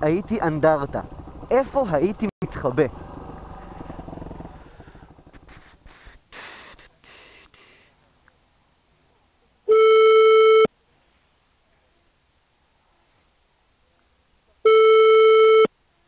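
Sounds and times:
engine and wind rumble: 0.0 - 6.0
telephone ringback tone: 9.7 - 10.7, 14.7 - 15.7.

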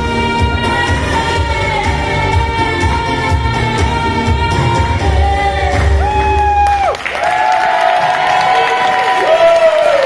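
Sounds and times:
woman singing: 0.0 - 6.5
accompanying music with bass: 0.0 - 6.9
audience applauding and cheering: 5.7 - 10.0.

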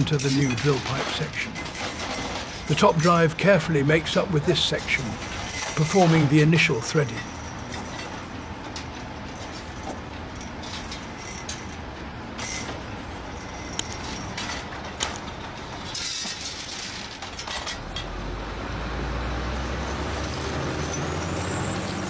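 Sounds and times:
mechanical clatter of steel gear: 0.0 - 3.3, 4.8 - 11.8, 12.4 - 18.2
sharp metal clinks: 19.5 - 22.0.

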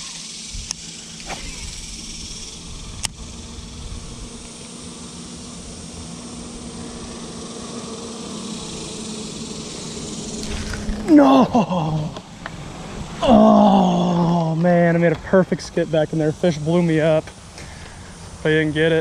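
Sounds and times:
insect buzz: 0.0 - 19.0
low traffic-like hum: 0.0 - 19.0.

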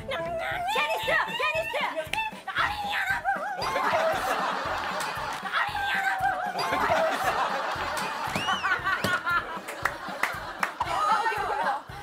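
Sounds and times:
people laughing and shrieking: 2.9 - 12.0.

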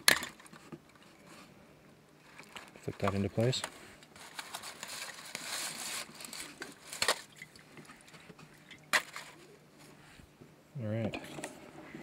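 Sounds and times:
rustling: 2.2 - 10.3.

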